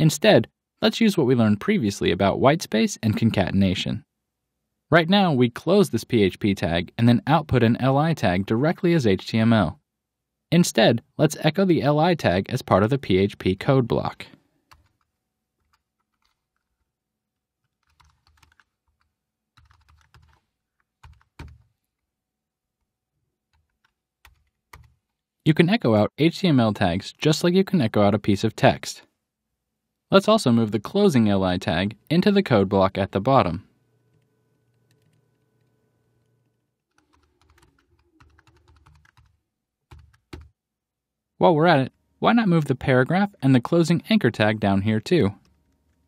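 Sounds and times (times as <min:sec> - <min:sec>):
keyboard typing: 0:14.7 - 0:16.9, 0:17.6 - 0:22.0, 0:23.5 - 0:25.2, 0:34.0 - 0:40.6.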